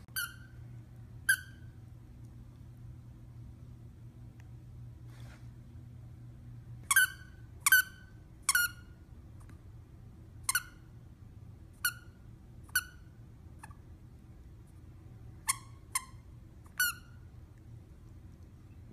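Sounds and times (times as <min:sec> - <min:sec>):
dog toy squeaking: 0:00.1 - 0:00.6, 0:01.3 - 0:01.6, 0:06.9 - 0:08.9, 0:10.5 - 0:10.8, 0:11.8 - 0:13.8, 0:15.4 - 0:17.2.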